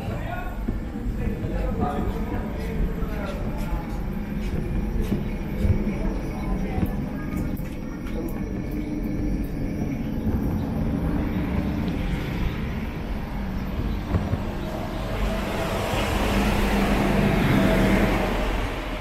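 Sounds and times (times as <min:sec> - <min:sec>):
vehicle passing by: 0:13.7 - 0:19.0.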